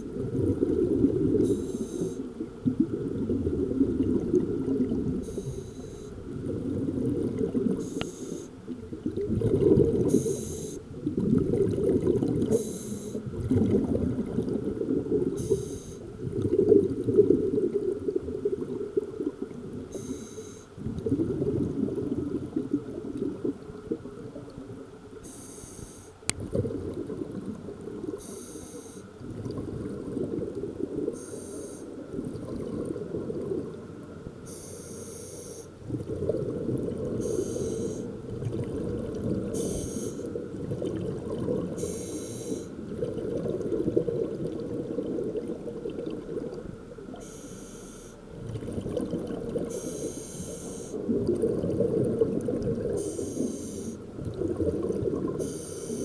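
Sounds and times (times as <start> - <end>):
bubbling exhaled air: 0.0 - 20.2, 20.8 - 24.1, 26.3 - 33.9, 35.8 - 47.6, 48.2 - 56.0
regulator breath hiss: 1.5 - 2.2, 10.1 - 10.8, 12.6 - 13.2, 25.2 - 26.2, 37.2 - 38.1, 39.6 - 40.3, 41.8 - 42.8, 49.7 - 51.0, 53.0 - 54.0, 55.4 - 56.0.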